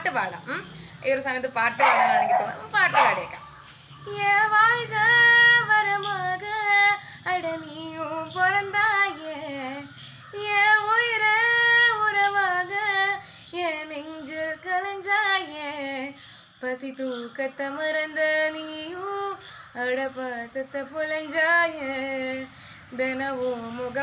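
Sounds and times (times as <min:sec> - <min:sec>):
woman singing unaccompanied: 0:00.0 - 0:24.0
breaths: 0:00.7 - 0:01.0, 0:07.0 - 0:07.3, 0:09.9 - 0:10.4, 0:13.2 - 0:13.6, 0:16.2 - 0:16.6, 0:19.4 - 0:19.8, 0:22.5 - 0:23.0.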